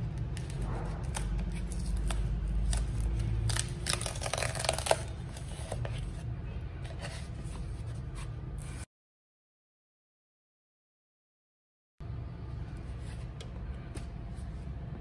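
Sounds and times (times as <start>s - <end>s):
sharp cardboard crack: 0.2s - 5.2s
cardboard ripping and crackling: 0.5s - 5.7s
steady low hum: 12.0s - 15.0s.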